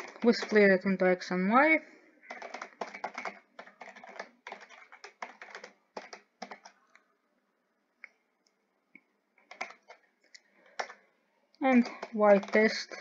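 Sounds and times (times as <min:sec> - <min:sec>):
typing on computer keyboard: 0:00.0 - 0:00.9, 0:02.3 - 0:06.8, 0:09.4 - 0:11.0, 0:11.6 - 0:13.0.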